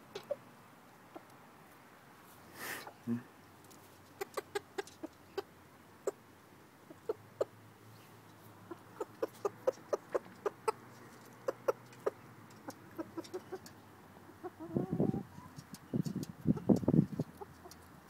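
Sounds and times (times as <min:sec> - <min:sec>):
rooster clucking: 0:00.0 - 0:00.5, 0:04.0 - 0:06.2, 0:06.8 - 0:07.6, 0:08.6 - 0:15.8.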